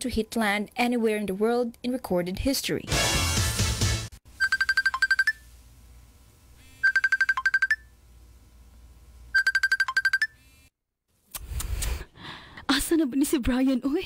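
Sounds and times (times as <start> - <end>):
phone ringtone beeping: 4.4 - 5.4, 6.8 - 7.9, 9.4 - 10.4.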